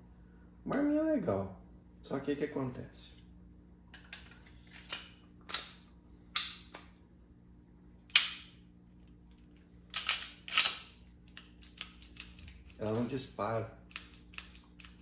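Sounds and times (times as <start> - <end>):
pistol slide racking: 9.9 - 11.0.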